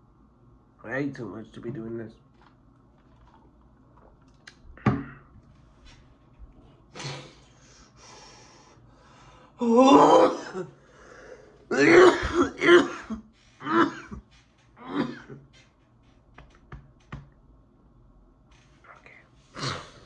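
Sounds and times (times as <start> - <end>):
man coughing hard: 10.0 - 10.8, 11.7 - 14.2, 14.8 - 15.4
man clearing his throat: 11.7 - 14.2, 14.8 - 15.4.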